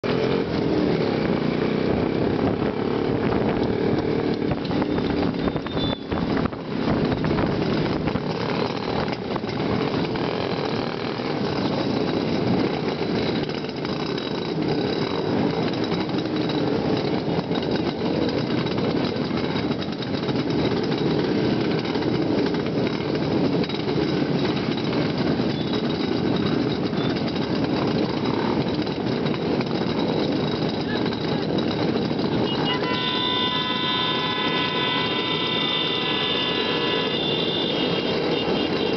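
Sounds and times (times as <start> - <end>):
motorcycle engines running: 0.0 - 38.9.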